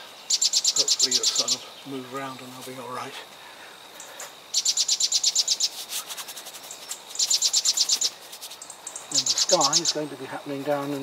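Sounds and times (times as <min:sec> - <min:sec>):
faint bird chirps: 0:00.0 - 0:02.6, 0:03.9 - 0:10.4
songbird rapid high notes: 0:04.6 - 0:10.4.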